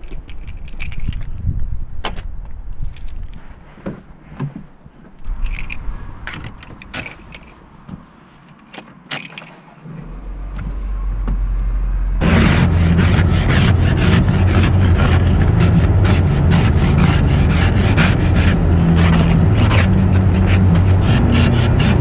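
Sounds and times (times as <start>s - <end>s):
keys jangling: 0.0s - 1.4s, 2.7s - 3.4s, 5.2s - 7.6s, 8.5s - 9.7s
car door opening: 5.1s - 8.1s
car engine running: 9.8s - 22.0s.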